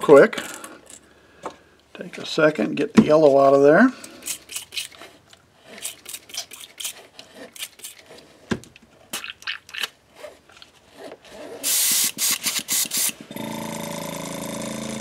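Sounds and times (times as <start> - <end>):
airbrush air hiss: 11.6 - 13.1
airbrush spritzing: 11.6 - 13.2.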